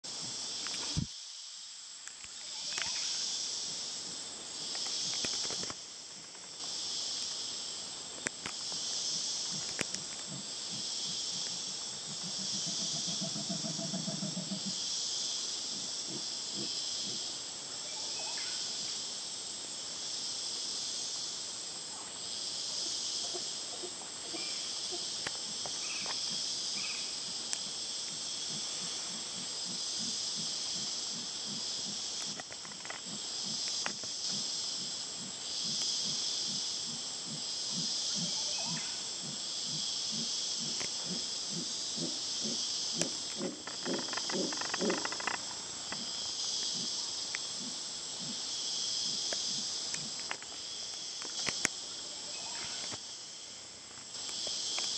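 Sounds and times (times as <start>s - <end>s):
insects droning: 0.0s - 54.9s
sharp clicks and rustles: 4.7s - 6.6s, 9.4s - 10.3s, 32.2s - 34.2s, 43.0s - 46.1s
howler monkey grunting call: 40.2s - 45.4s.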